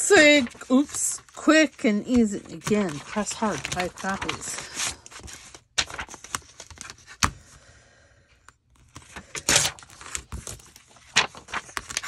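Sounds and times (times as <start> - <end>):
paper rustle: 0.1 - 7.3, 8.8 - 12.0
paper pieces clicking and tapping: 2.0 - 4.6, 5.2 - 7.3, 8.9 - 12.0.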